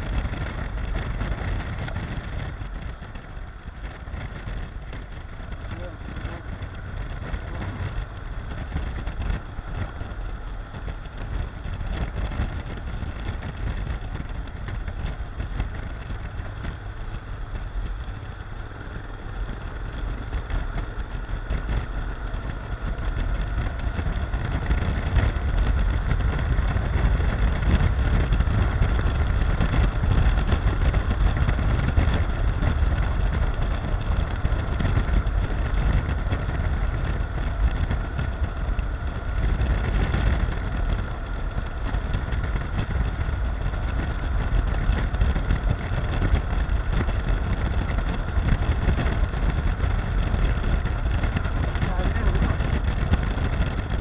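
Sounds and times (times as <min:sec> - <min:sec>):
motorcycle engine running: 0:00.0 - 0:54.0
steady rushing noise: 0:00.0 - 0:54.0.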